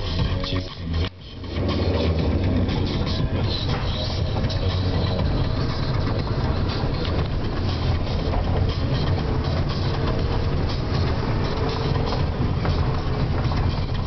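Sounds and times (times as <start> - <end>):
car engine and tyre rumble: 0.0 - 14.0.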